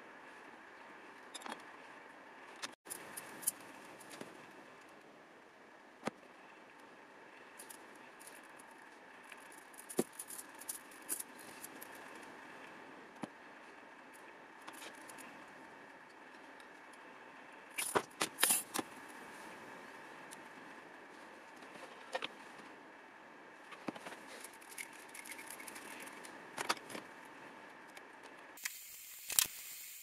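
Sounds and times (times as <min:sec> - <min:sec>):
wire clicks and scrapes: 0:07.6 - 0:12.3, 0:14.1 - 0:15.4, 0:17.7 - 0:19.2, 0:23.6 - 0:27.2
louder wire clicks and rattles: 0:24.3 - 0:27.0.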